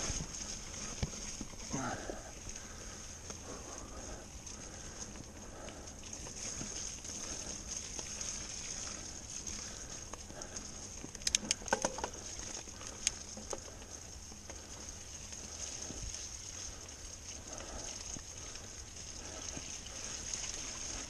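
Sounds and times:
bike clicks and rattles: 0.0s - 21.0s
bike tyres on dirt and leaves: 0.0s - 21.0s.

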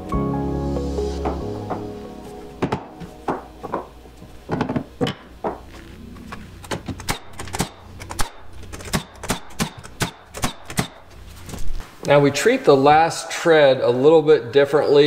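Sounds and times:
nail gun firing into wood: 7.0s - 11.0s.

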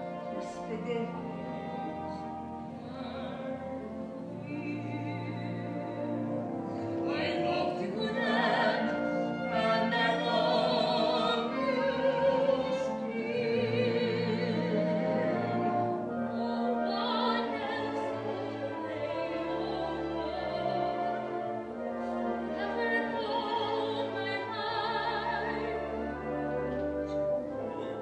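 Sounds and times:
orchestral accompaniment: 0.0s - 28.0s
woman singing operatic melody: 0.0s - 28.0s.

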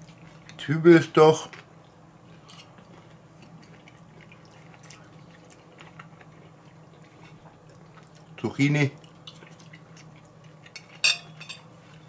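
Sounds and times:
mouth chewing: 2.3s - 11.0s.

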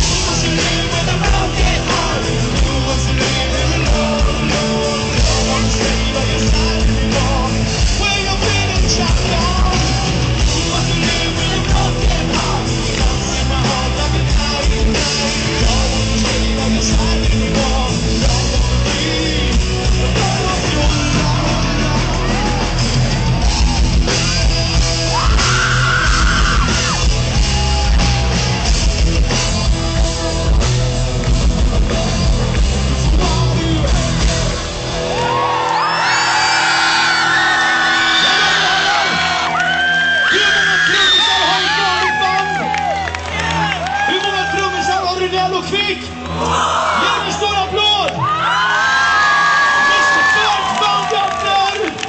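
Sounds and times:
rock band playing loud: 0.0s - 52.0s
crowd cheering and whooping: 21.0s - 33.0s, 34.5s - 45.3s, 46.1s - 52.0s.

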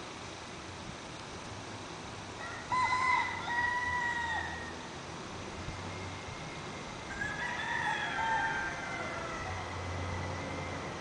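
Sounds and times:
rooster crowing: 2.4s - 4.8s, 7.1s - 10.8s.

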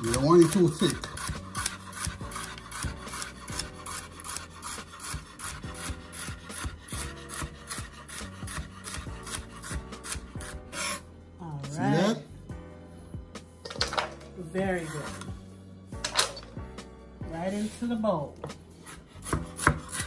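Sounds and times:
knife chopping on wooden board: 0.0s - 11.0s, 18.4s - 20.0s.

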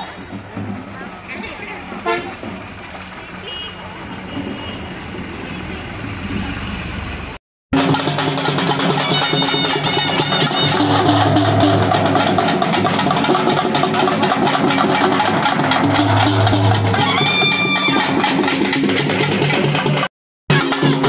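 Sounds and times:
frame drums beaten: 7.7s - 21.0s
steady low tones: 15.1s - 17.2s
short high shrill notes: 16.8s - 18.3s.

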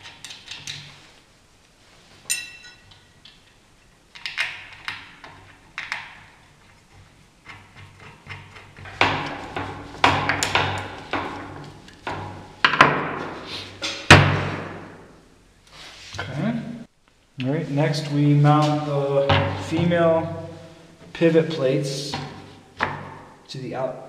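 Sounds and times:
screwdriver clicking and scraping metal: 0.0s - 0.9s
loud knock: 8.9s - 15.0s, 19.2s - 20.0s.

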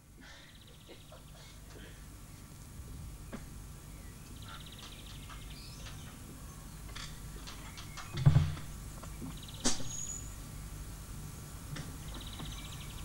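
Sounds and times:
small knocks and clicks: 4.7s - 6.2s, 6.9s - 9.8s.

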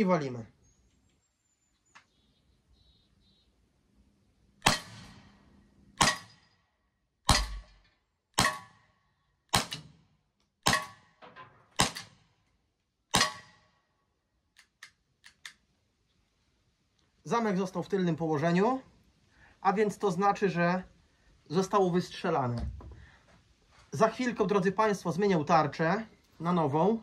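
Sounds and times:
air pistol shots cracking: 4.6s - 5.4s, 6.0s - 6.4s, 7.3s - 7.8s, 8.4s - 8.9s, 9.5s - 10.0s, 10.6s - 11.1s, 11.8s - 12.2s, 13.1s - 13.7s.

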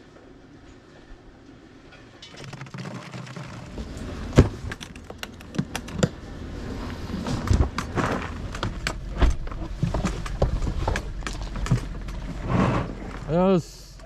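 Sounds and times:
low rumbling background: 3.6s - 14.0s.

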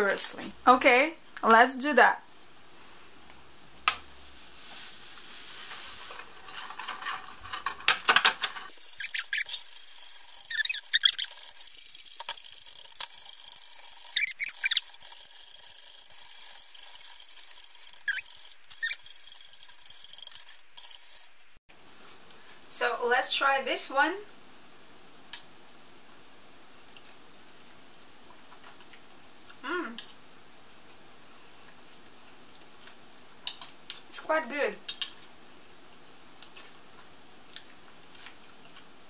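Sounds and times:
whisk wires scraping enamel: 8.6s - 21.4s.

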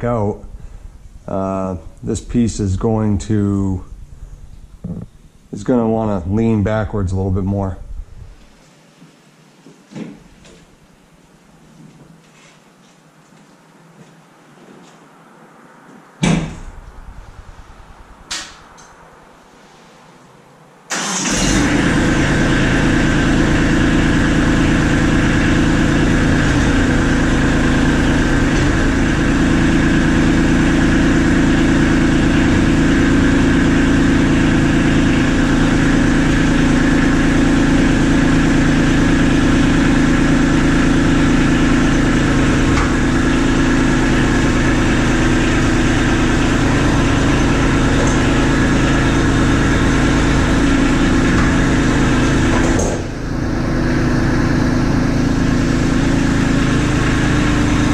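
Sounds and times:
tractor diesel engine starting and running: 20.9s - 57.9s.

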